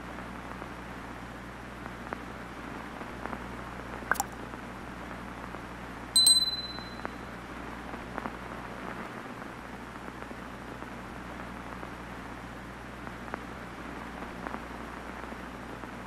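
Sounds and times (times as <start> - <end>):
mouse click sound effect: 4.1 - 4.4
bell ding: 6.2 - 7.1.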